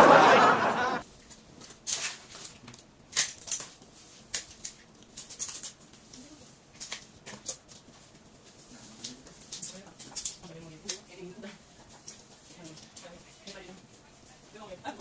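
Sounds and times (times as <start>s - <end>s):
burst of laughter: 0.0s - 1.0s
utensils handling food: 1.0s - 14.0s
plastic gloves crinkling: 1.0s - 15.0s.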